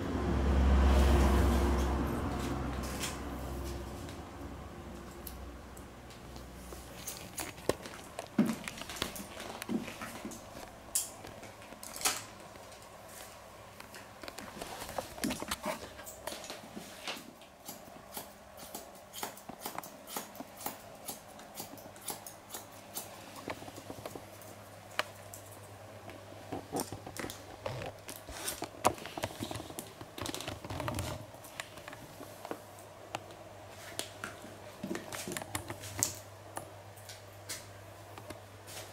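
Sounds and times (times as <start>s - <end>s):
scissors snipping hair: 17.6s - 23.2s.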